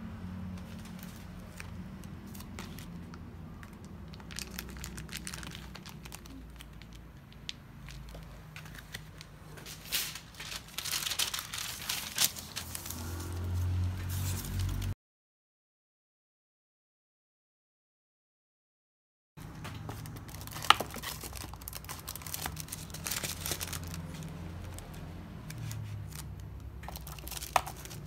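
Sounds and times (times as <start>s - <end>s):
packaging crinkling: 2.3s - 13.0s, 19.8s - 28.0s.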